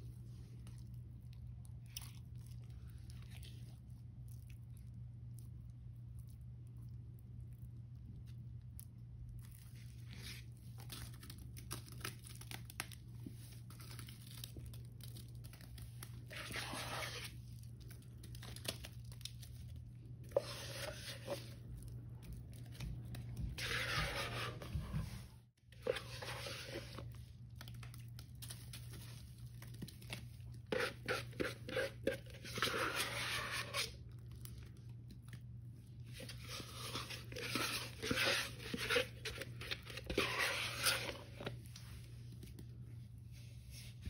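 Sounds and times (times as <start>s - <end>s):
wet paste squishing by hand: 0.0s - 44.0s
paste scraped from plastic tub: 16.2s - 17.4s, 20.3s - 21.6s, 23.5s - 25.2s, 25.8s - 27.1s, 30.6s - 34.0s, 36.1s - 41.6s.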